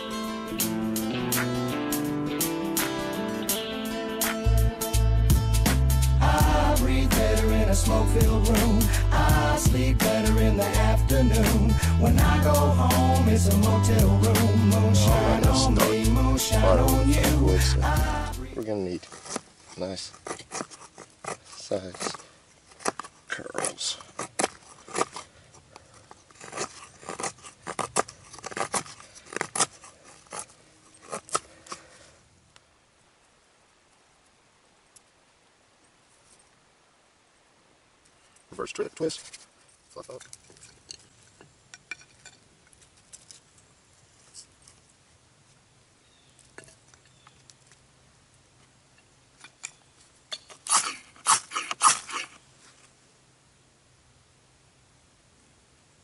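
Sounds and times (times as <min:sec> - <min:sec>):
knife shaving dry wood: 0:19.0 - 0:32.0, 0:50.5 - 0:52.4.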